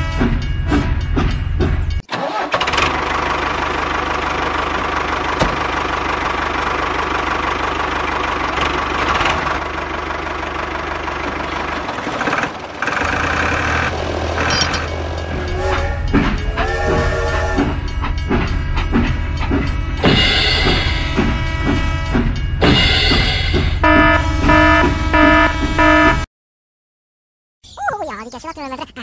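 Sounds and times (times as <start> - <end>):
engine starting and humming: 2.0 - 15.5.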